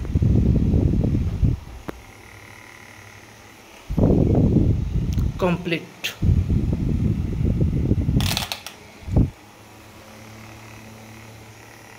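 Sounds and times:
fan motor humming: 0.0 - 11.9.

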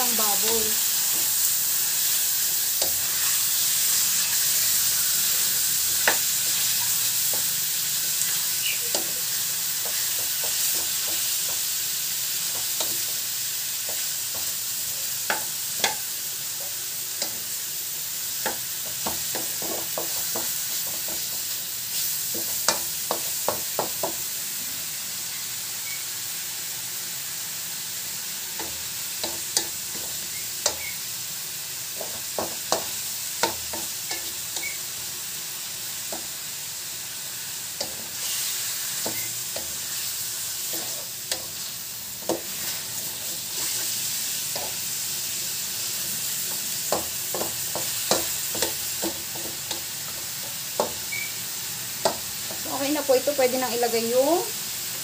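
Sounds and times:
meat sizzling in hot oil: 0.0 - 55.0
wooden spatula scraping wok: 37.8 - 44.8.

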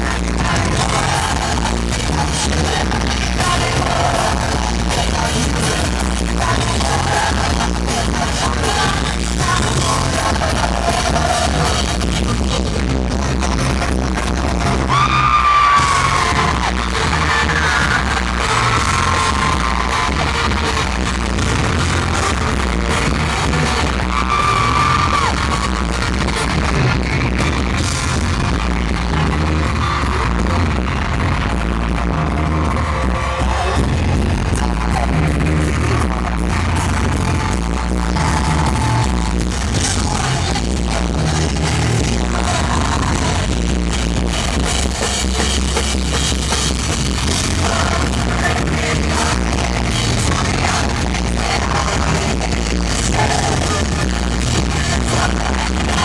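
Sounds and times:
lead singing: 0.0 - 27.2, 32.3 - 56.0
live pop-rock band: 0.0 - 56.0.

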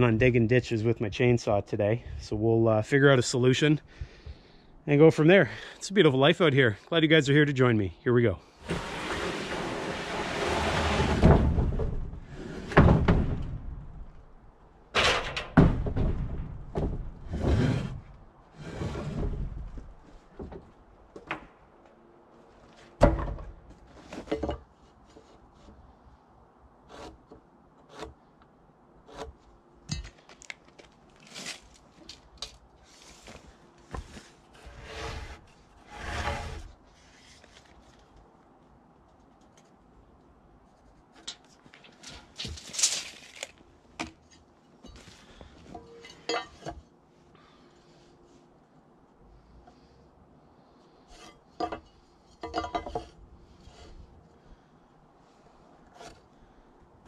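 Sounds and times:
wooden boards knocking and clattering: 8.8 - 13.8, 15.0 - 18.0, 23.0 - 24.7.

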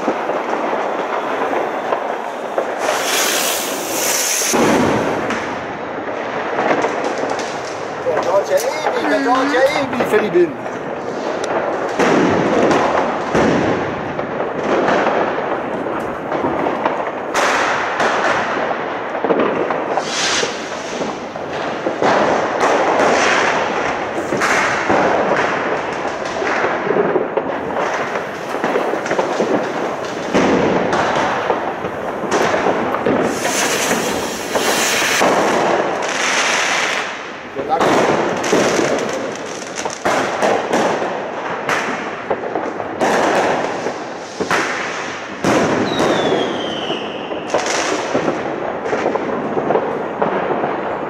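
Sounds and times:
ground firework hissing: 0.0 - 5.8, 19.8 - 26.7, 27.5 - 41.0
fireworks banging and crackling: 0.0 - 51.0.

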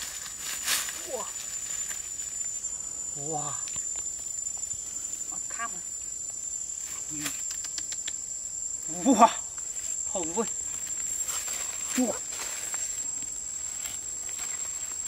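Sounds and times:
rustling of dry leaf litter: 0.0 - 2.6, 9.6 - 15.0
high-pitched insect drone: 0.0 - 15.0.

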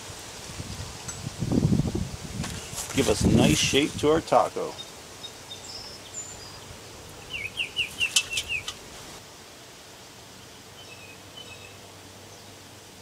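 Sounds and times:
outdoor background noise: 0.0 - 13.0
bird singing falling notes: 4.7 - 8.8
faint bird chirps: 4.7 - 8.8, 10.4 - 12.6.

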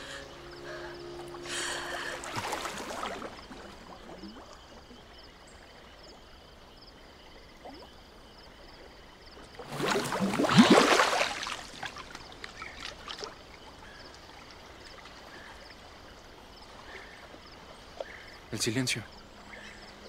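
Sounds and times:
water splashing: 0.0 - 5.4, 9.4 - 18.5.

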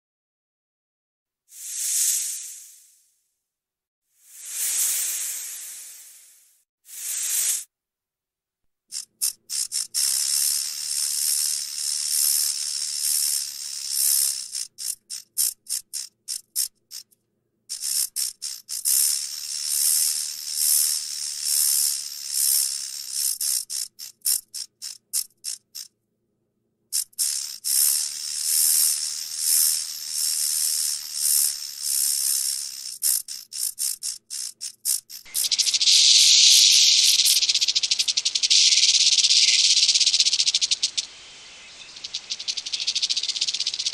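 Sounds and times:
rattlesnake rattle buzzing: 1.5 - 3.0, 4.2 - 7.7, 8.9 - 25.9, 26.9 - 43.9.

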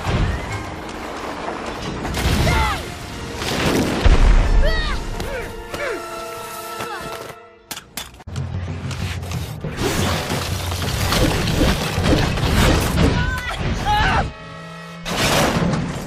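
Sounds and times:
orchestral score: 0.1 - 8.0.

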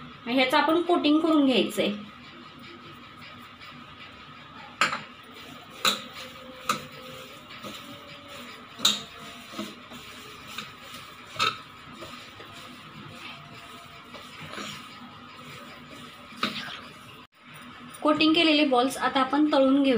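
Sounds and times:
hands tossing food in a bowl: 5.4 - 17.2.

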